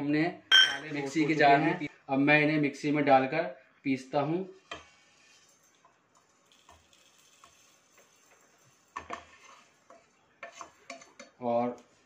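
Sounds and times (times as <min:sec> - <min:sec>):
spatula scraping a pan: 0:04.5 - 0:12.0.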